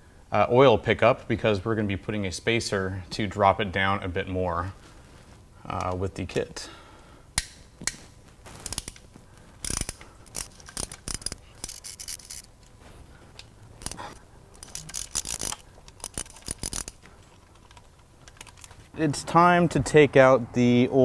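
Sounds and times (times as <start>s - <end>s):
ratchet wrench clicking: 8.6s - 9.0s, 9.6s - 12.5s, 13.8s - 17.0s.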